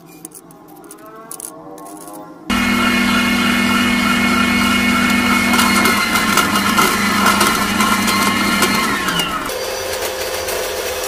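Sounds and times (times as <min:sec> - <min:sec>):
meat grinder motor running: 0:02.5 - 0:11.0.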